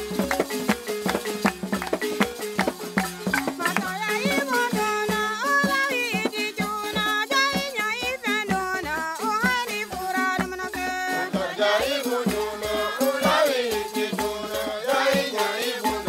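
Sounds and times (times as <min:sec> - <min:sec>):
hand drum: 0:00.0 - 0:16.0
wooden xylophone notes: 0:00.0 - 0:16.0
person singing: 0:03.6 - 0:16.0.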